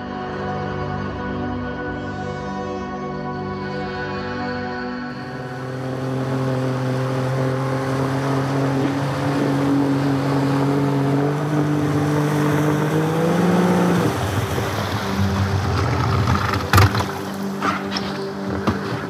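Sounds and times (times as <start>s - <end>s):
outboard motor running: 5.1s - 19.0s
water rushing: 5.1s - 19.0s.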